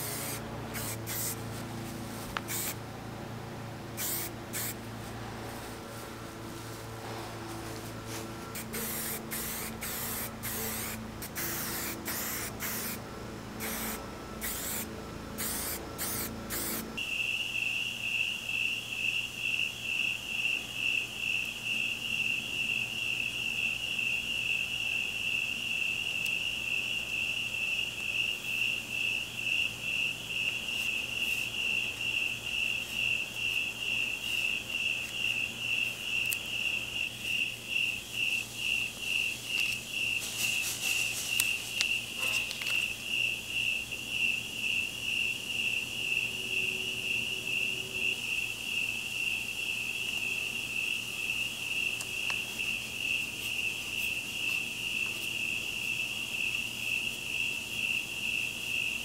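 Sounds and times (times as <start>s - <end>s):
cricket chirping: 0.0s - 1.4s, 2.5s - 2.8s, 4.0s - 4.8s, 8.5s - 13.0s, 13.6s - 59.0s
spray paint can hissing: 0.0s - 1.4s, 2.4s - 2.8s, 4.0s - 4.8s, 8.6s - 13.0s, 13.6s - 16.8s.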